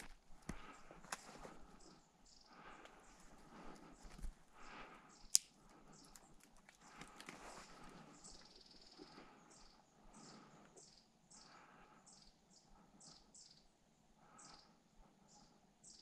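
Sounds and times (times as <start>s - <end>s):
twig snapping: 0.0s - 1.4s, 3.6s - 8.0s.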